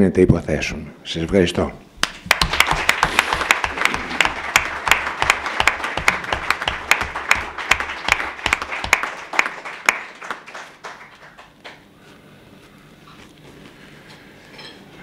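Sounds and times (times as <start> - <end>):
audience applause: 2.0 - 11.9.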